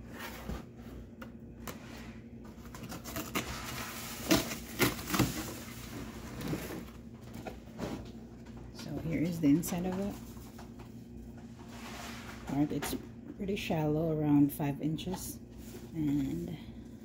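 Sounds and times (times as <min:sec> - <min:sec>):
cardboard rustling and sliding: 0:00.0 - 0:01.1, 0:01.7 - 0:08.0.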